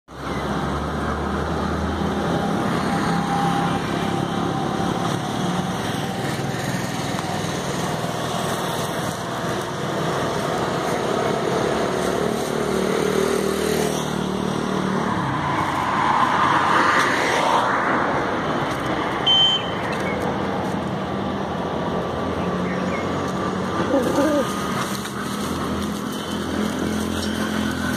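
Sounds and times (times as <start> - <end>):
steady traffic noise: 0.0 - 27.9
vehicle passing: 0.6 - 19.2
short high beep: 19.3 - 19.8.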